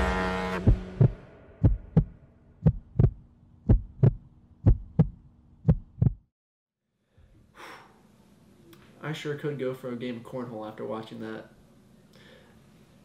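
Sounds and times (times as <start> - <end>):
heartbeat double thumps: 0.6 - 6.3.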